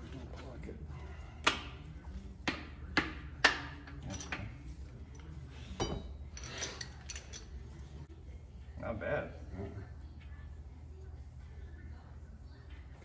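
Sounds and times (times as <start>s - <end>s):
ringing metal clink: 5.2s - 7.6s.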